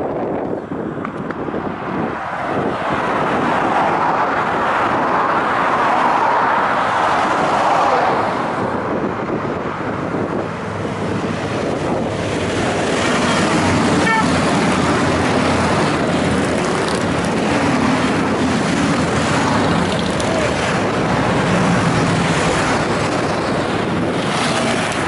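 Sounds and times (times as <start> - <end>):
motorcycle engines approaching: 10.3 - 25.0.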